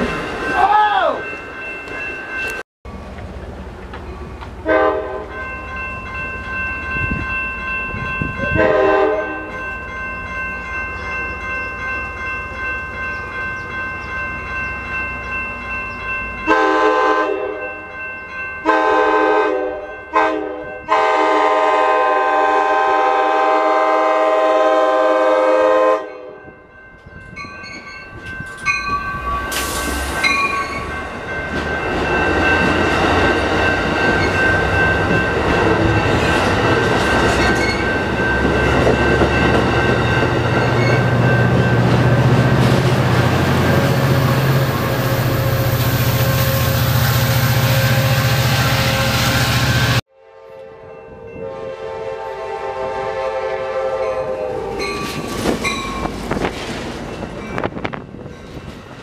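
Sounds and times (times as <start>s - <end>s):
passenger train rumbling past: 0.0s - 59.0s
train horn blasts: 4.6s - 5.4s, 8.4s - 9.6s, 16.5s - 17.7s, 18.6s - 26.5s, 44.0s - 55.0s.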